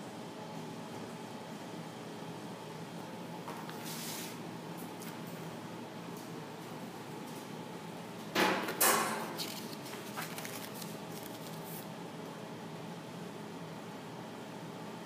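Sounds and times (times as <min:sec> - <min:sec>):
steady low hum: 0:00.0 - 0:15.0
paper page rustling: 0:09.3 - 0:11.9.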